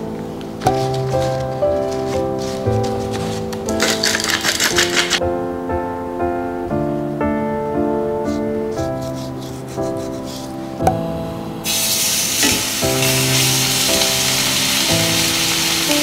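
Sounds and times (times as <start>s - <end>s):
gentle background music: 0.0s - 16.0s
soft rubbing of seasoning on steak: 8.7s - 10.8s
steaks sizzling in a frying pan: 11.6s - 16.0s.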